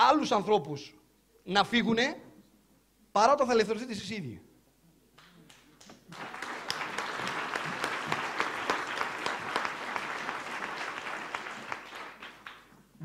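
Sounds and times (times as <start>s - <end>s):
audience applauding: 5.8s - 12.8s.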